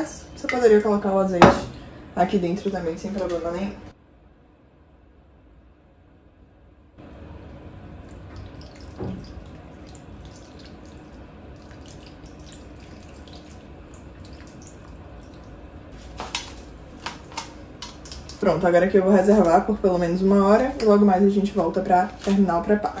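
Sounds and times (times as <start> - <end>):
liquid pouring onto raw chicken: 8.1 - 16.6.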